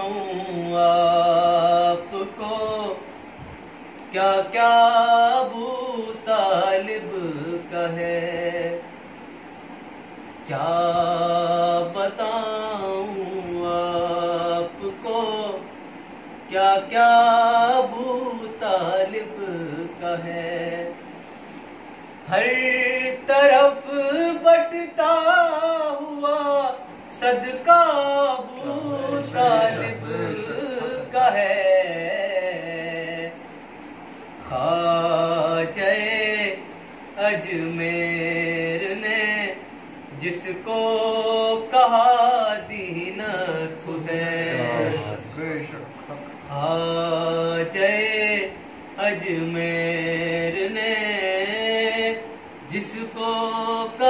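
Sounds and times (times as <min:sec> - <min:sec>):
man chanting: 0:00.0 - 0:03.0, 0:22.3 - 0:33.4, 0:37.2 - 0:54.0.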